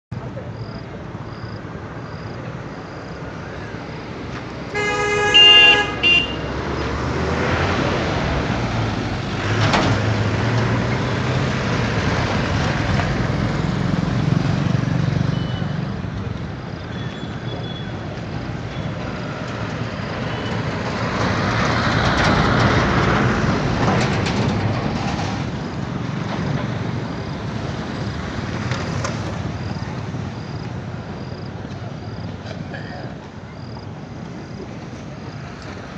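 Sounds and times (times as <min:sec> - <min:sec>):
street traffic noise: 0:00.1 - 0:35.9
vehicles passing: 0:00.2 - 0:35.9
vehicle horn tooting: 0:04.7 - 0:06.5.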